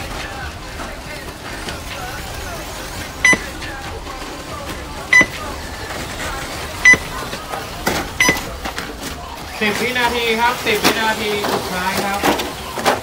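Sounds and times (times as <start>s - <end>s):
short high beeps: 3.2s - 3.5s, 5.1s - 5.4s, 6.8s - 7.1s, 8.2s - 8.5s.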